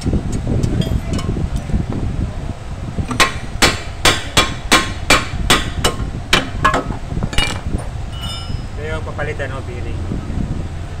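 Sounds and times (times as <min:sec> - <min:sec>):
hammer striking metal hub: 0:03.1 - 0:08.8.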